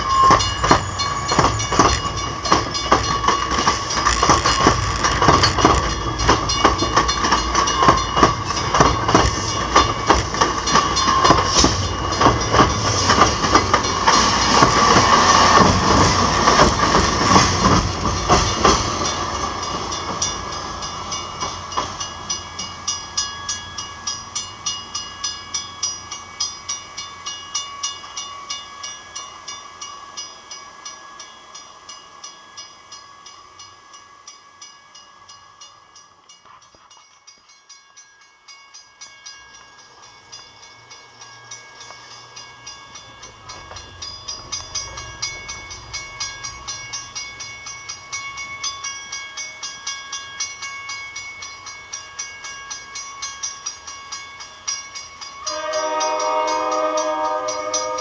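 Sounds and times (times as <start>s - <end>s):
crossing bell ringing: 0.0s - 58.0s
train rumbling: 0.0s - 58.0s.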